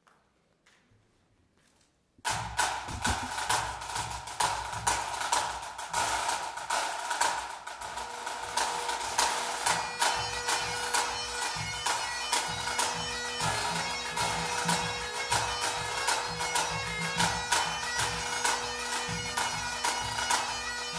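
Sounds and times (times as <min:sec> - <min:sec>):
drums beating: 0:02.2 - 0:20.9
bagpipes playing: 0:07.8 - 0:20.9.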